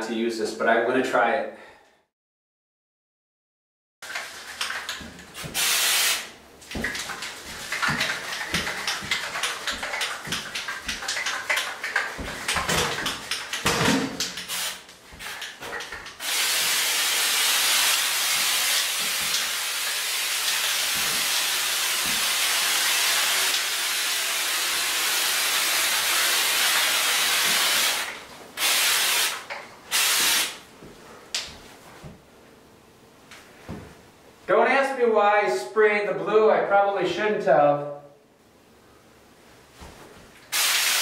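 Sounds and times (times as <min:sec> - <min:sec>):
aerosol can rattling: 0:04.0 - 0:16.8
aerosol can spraying hiss: 0:05.4 - 0:06.3, 0:14.4 - 0:15.4, 0:16.2 - 0:30.6, 0:40.5 - 0:41.0.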